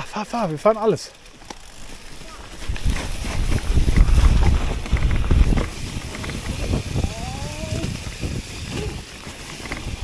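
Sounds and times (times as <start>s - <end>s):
bike tyre rumble and rattling: 0.0s - 10.0s
wind buffeting microphone: 2.6s - 10.0s.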